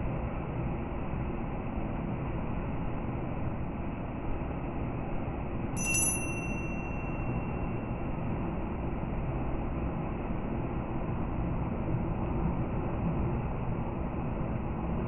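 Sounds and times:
high multi-tone chime: 5.8s - 7.6s.

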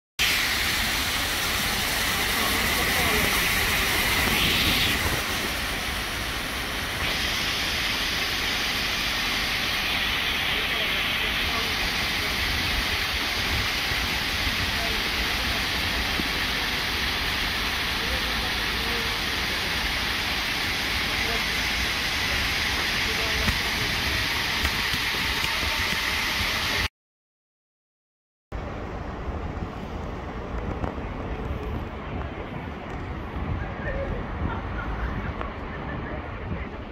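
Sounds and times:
water cascading down fountain steps: 0.2s - 26.9s.

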